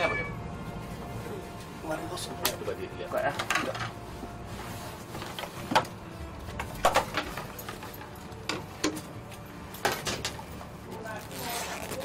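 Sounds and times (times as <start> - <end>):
bags rustling: 3.1 - 12.0.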